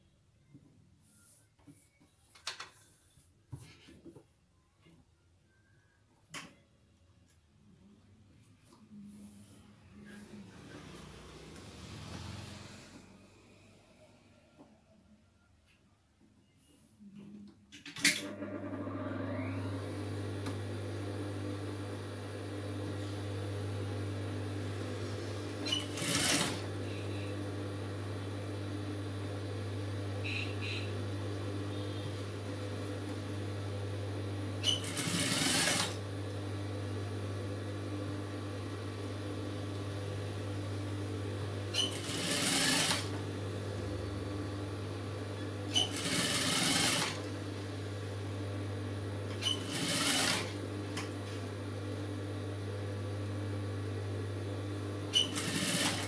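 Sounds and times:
sewing machine stitching: 25.6s - 26.8s, 34.6s - 36.0s, 41.7s - 43.2s, 45.7s - 47.3s, 49.3s - 50.7s, 55.1s - 56.0s.

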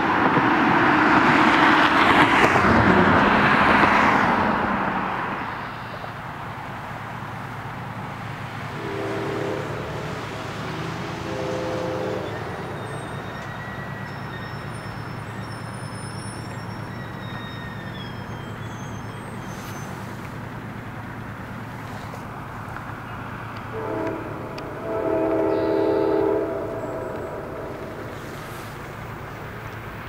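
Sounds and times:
road noise: 0.0s - 30.0s
distant train horn: 8.6s - 20.2s, 21.8s - 29.3s.

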